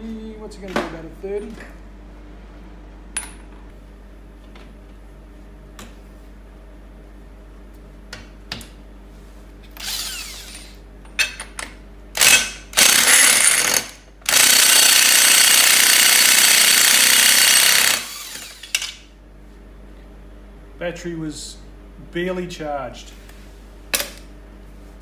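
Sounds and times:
impact wrench hammering: 0:12.2 - 0:19.0.

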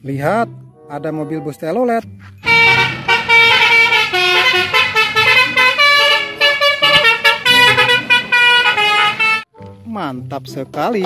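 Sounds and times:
tuned bus air horns: 0:02.4 - 0:09.5.

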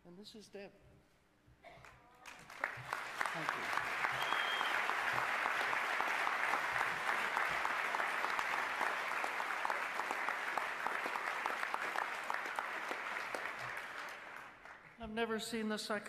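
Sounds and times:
audience applauding: 0:02.2 - 0:15.0.

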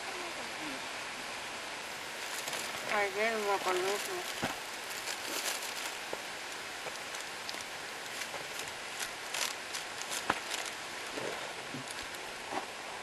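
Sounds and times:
steady hiss: 0:00.0 - 0:13.0
plastic wrapping crinkling: 0:02.2 - 0:06.2, 0:06.8 - 0:10.8.

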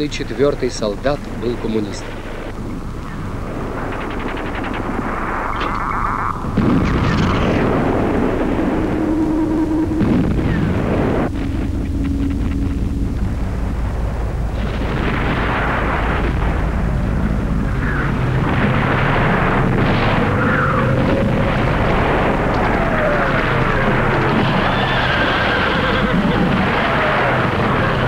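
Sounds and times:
rumble of explosions and artillery: 0:00.0 - 0:28.0
falling whistles: 0:05.4 - 0:13.2.

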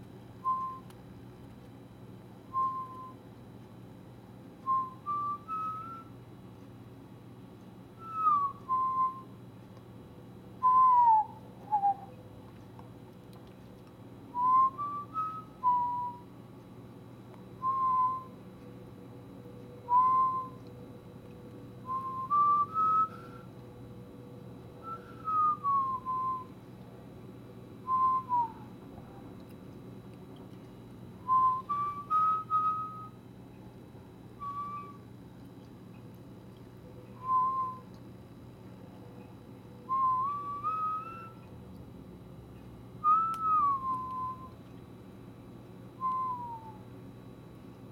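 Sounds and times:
steady low hum: 0:00.0 - 0:47.9
person whistling short phrases: 0:02.5 - 0:03.2, 0:04.7 - 0:06.2, 0:08.0 - 0:09.3, 0:10.6 - 0:12.2, 0:14.4 - 0:16.3, 0:17.6 - 0:18.3, 0:19.9 - 0:20.6, 0:21.9 - 0:23.4, 0:24.8 - 0:26.5, 0:27.9 - 0:28.7, 0:31.2 - 0:33.2, 0:34.4 - 0:35.0, 0:37.2 - 0:37.9, 0:39.9 - 0:41.5, 0:43.0 - 0:44.5, 0:46.0 - 0:46.8.

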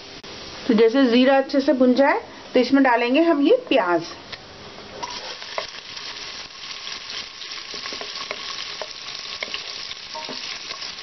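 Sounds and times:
onion sizzling in hot oil: 0:05.0 - 0:11.0.

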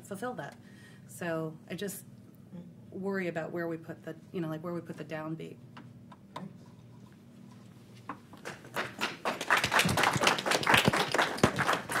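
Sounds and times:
small group applauding: 0:08.4 - 0:12.0.

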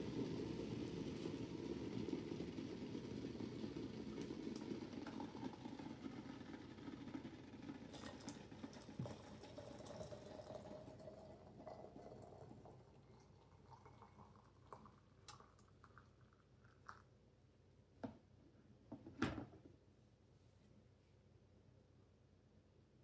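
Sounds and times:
water pouring into teapot: 0:00.0 - 0:17.1.

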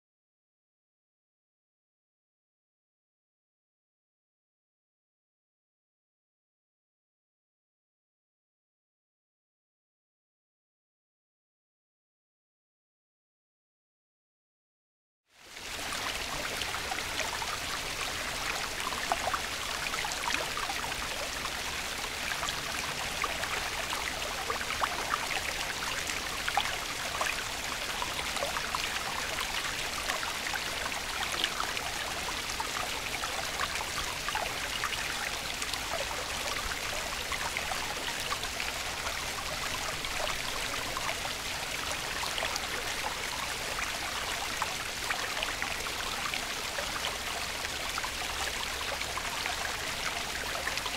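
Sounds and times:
stream water rushing: 0:15.5 - 0:50.9.

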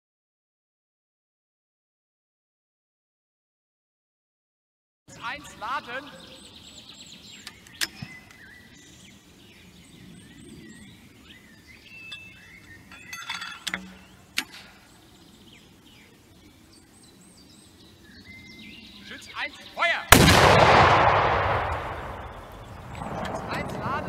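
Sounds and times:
birds singing: 0:05.1 - 0:20.6, 0:21.3 - 0:24.0.

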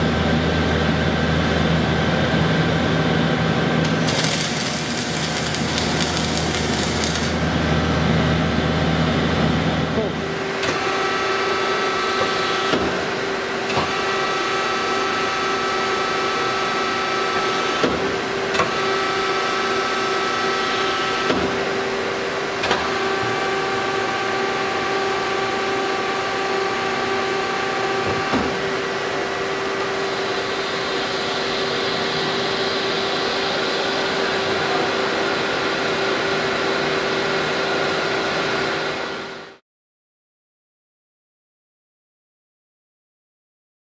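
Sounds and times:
straightening machine humming: 0:03.6 - 0:08.3
hiss: 0:03.9 - 0:07.3.

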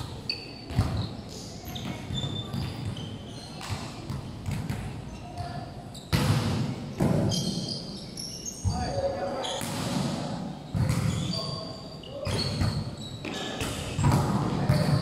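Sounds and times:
shoe squeaks: 0:00.0 - 0:03.9, 0:05.1 - 0:06.2, 0:07.2 - 0:09.6, 0:11.0 - 0:14.1.

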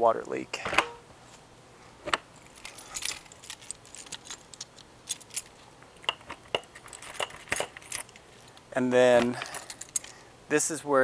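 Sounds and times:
keys jingling: 0:02.4 - 0:08.4, 0:09.2 - 0:10.2.

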